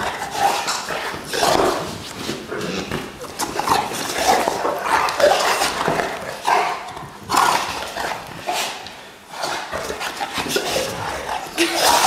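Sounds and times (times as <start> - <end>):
dog growling: 2.5 - 12.0.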